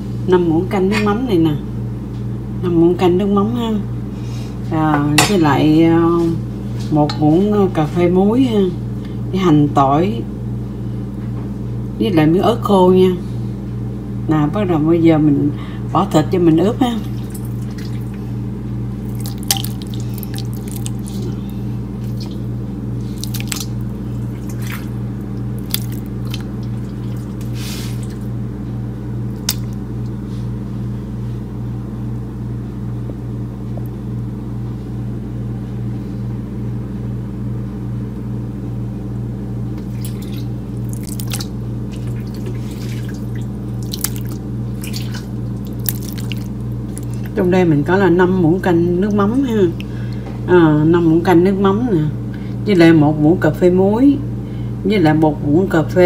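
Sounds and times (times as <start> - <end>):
steady low hum: 0.0 - 56.0
wet squelches and drips: 17.0 - 18.2, 19.0 - 28.3, 29.3 - 29.8, 39.8 - 47.4.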